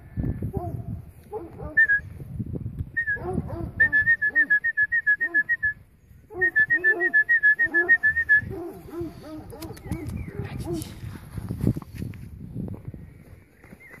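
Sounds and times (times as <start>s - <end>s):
short high whistles: 1.8s - 2.1s, 3.8s - 5.8s, 6.4s - 8.5s.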